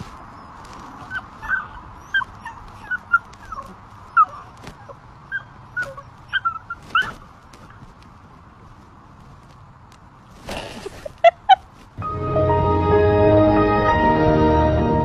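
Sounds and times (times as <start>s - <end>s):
puppy whimpering: 0.4s - 7.2s.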